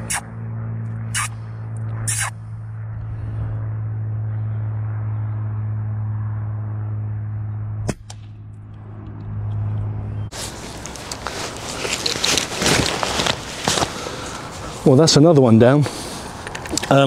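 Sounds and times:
low steady hum: 0:00.0 - 0:17.0
outdoor rustling: 0:08.1 - 0:17.0.

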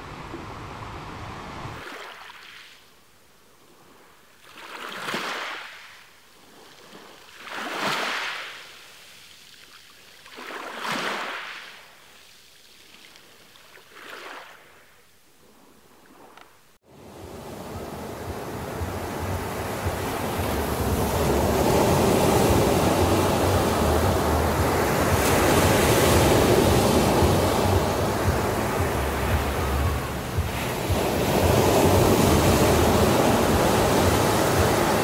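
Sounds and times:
steady surf noise: 0:00.0 - 0:01.9, 0:16.8 - 0:35.0
small sea waves washing in: 0:00.0 - 0:03.0, 0:03.6 - 0:35.0.

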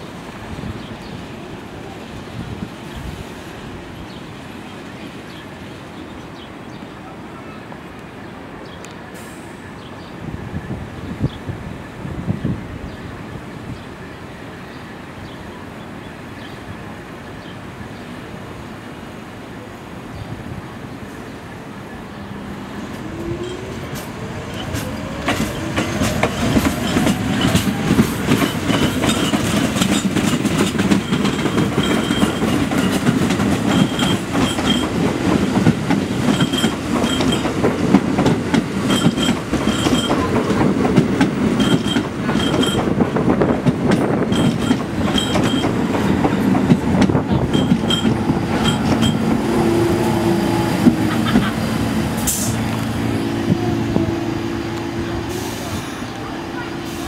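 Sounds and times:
train wheels rumbling on rails: 0:21.6 - 0:57.0
wheels clicking over rail joints: 0:23.0 - 0:49.5.

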